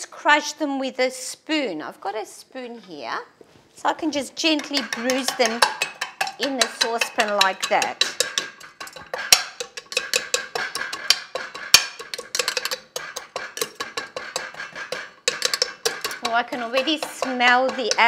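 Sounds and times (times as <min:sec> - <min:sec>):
metal spoon scraping a saucepan: 0:04.1 - 0:18.0.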